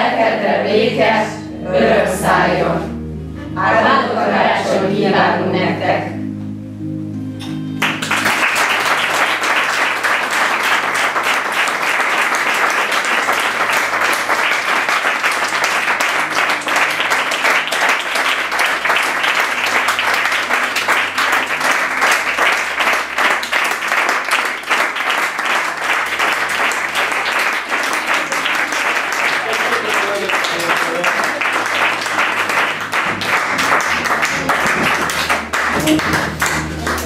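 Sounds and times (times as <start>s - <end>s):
music: 0.0s - 37.0s
audience applauding: 7.8s - 37.0s.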